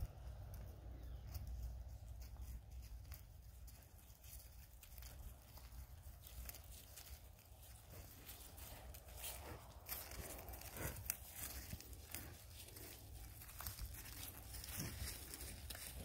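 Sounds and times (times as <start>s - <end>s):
cattle steps in grass: 0.0s - 16.0s
low steady rumble: 0.0s - 16.0s.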